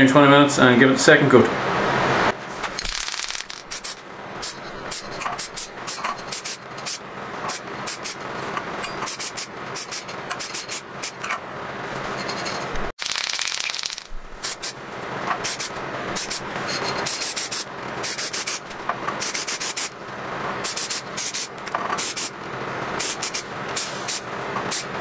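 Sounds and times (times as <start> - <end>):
aerosol spray can hissing: 13.0 - 14.7.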